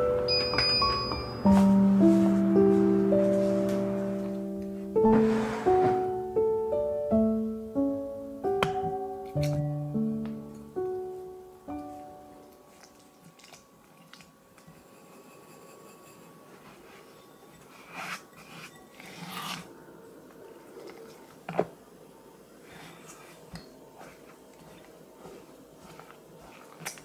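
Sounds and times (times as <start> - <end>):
spatula squishing and scraping: 22.7 - 27.0.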